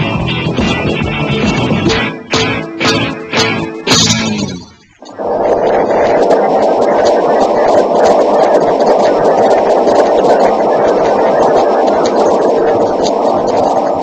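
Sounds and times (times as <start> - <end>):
hum: 0.0 - 14.0
loud steady rushing noise: 0.0 - 14.0
faint crackles: 2.8 - 14.0.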